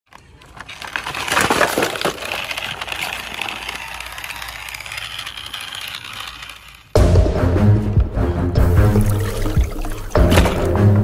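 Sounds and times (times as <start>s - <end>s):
small hard objects rattling: 0.1s - 7.0s.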